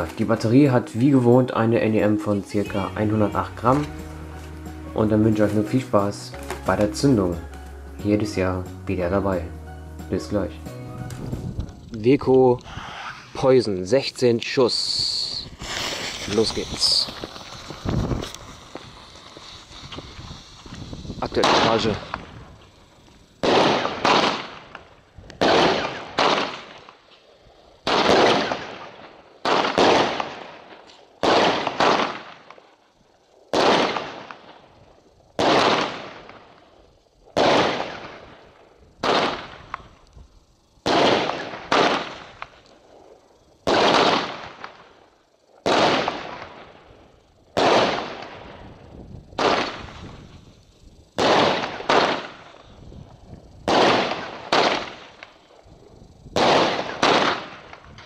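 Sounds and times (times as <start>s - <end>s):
fireworks bangs: 12.4s - 27.0s, 27.8s - 32.6s, 33.5s - 34.6s, 35.4s - 36.6s, 37.3s - 38.4s, 39.0s - 40.0s, 40.8s - 42.6s, 43.6s - 45.0s, 45.6s - 46.8s, 47.6s - 48.7s, 49.4s - 50.4s, 51.2s - 52.7s, 53.6s - 55.4s, 56.3s - 58.0s.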